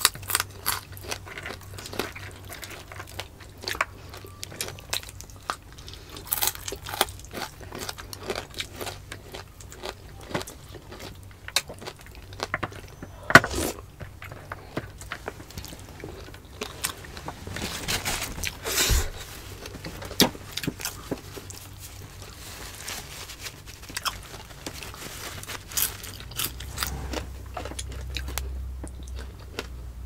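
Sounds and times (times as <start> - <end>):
chewing and mouth smacks: 25.8 - 29.7.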